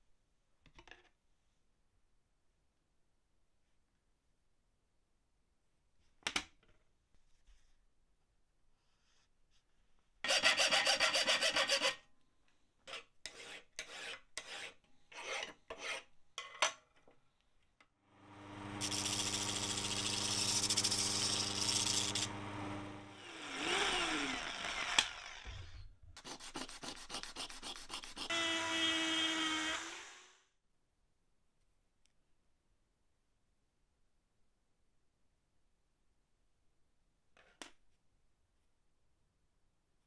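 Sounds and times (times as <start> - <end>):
rasping strokes: 12.9 - 16.1, 18.8 - 22.4, 26.2 - 28.4
disc sander motor hum: 18.2 - 25.5
rotary tool whine: 18.2 - 25.8
brass scraping on sanding disc: 18.8 - 22.6.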